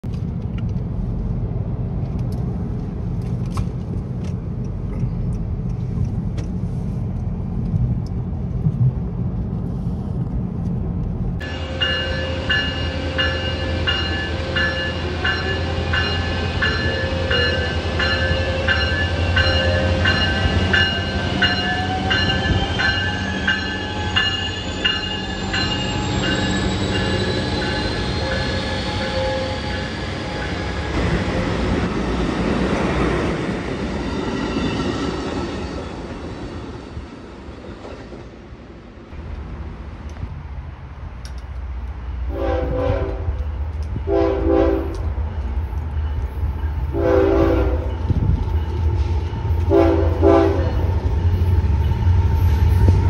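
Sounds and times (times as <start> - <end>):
locomotive bell ringing: 11.4 - 30.9, 45.1 - 53.0
locomotive whine rising: 11.4 - 39.5, 45.0 - 53.0.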